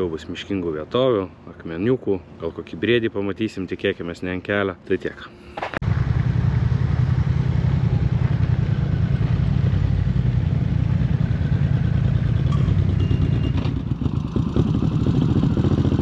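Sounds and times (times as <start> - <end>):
motorcycle engine running: 5.8 - 16.0.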